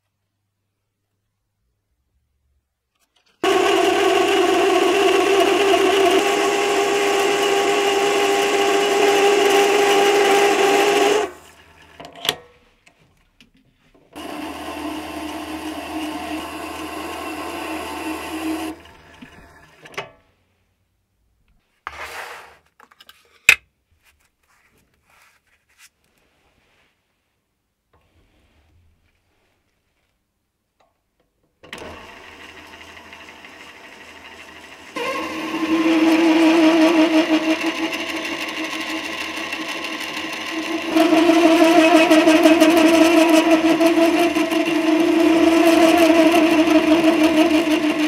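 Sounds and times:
cutting tool on spinning metal: 0:03.4 - 0:12.0, 0:14.2 - 0:19.8, 0:31.8 - 0:48.0
lathe whining: 0:03.4 - 0:12.0, 0:14.2 - 0:20.0, 0:31.7 - 0:48.0.

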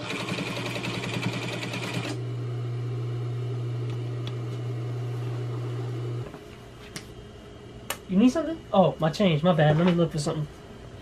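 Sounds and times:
sewing machine motor humming: 0:00.0 - 0:06.2.

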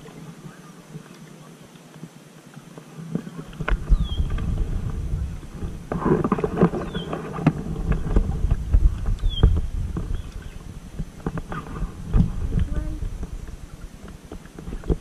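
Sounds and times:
paddle splashing: 0:00.0 - 0:15.0
wind rumble on microphone: 0:02.0 - 0:15.0
bird chirps: 0:03.9 - 0:04.4, 0:06.7 - 0:07.2, 0:09.2 - 0:10.6.

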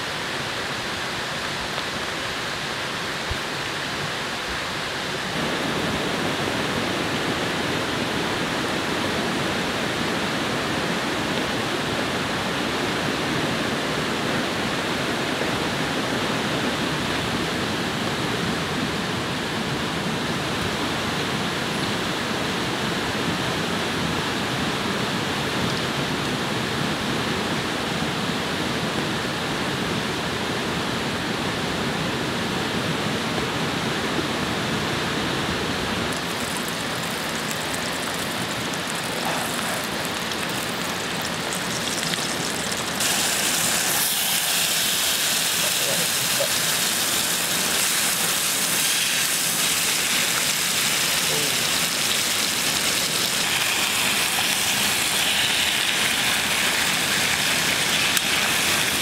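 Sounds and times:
water rushing: 0:33.6 - 0:59.0.

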